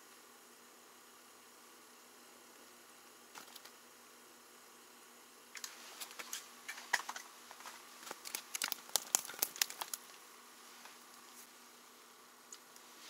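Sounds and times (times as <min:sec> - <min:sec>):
light sharp ticks and crackles: 0:05.6 - 0:10.2
crinkling and rustling: 0:05.6 - 0:11.5.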